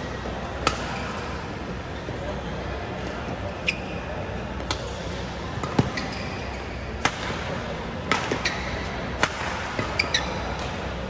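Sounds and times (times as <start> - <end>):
racket hitting shuttlecock: 0.6 - 1.3, 4.6 - 5.0, 5.6 - 6.1, 6.9 - 10.9
shoe squeaks: 3.6 - 4.2, 5.8 - 6.9, 9.8 - 10.6.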